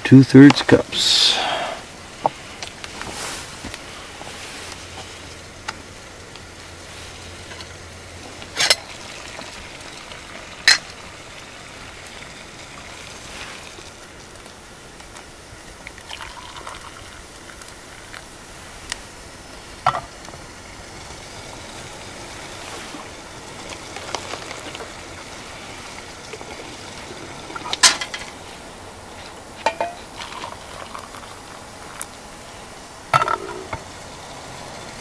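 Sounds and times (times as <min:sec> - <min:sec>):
faint steady hiss: 0:00.0 - 0:35.0
hot water pouring: 0:00.0 - 0:35.0
pot handle clinking: 0:27.6 - 0:28.3, 0:29.6 - 0:30.0.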